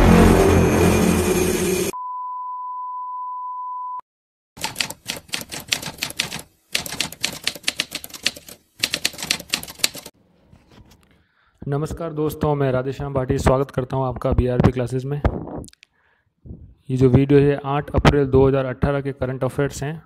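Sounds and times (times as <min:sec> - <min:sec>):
loud noisy sound effect: 0:00.0 - 0:02.0
steady beep: 0:00.0 - 0:04.0
typewriter key clatter: 0:04.6 - 0:10.1.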